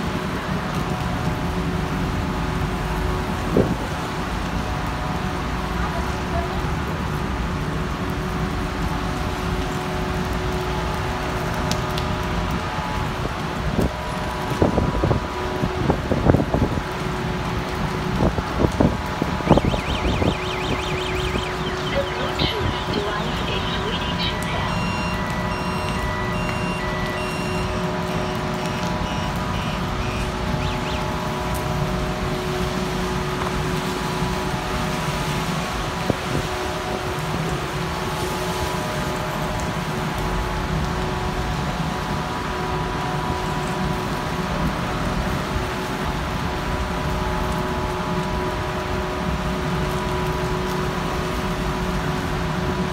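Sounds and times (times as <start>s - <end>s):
road traffic: 0.0s - 47.6s
rain: 0.0s - 52.9s
short electronic beeps: 19.5s - 31.0s.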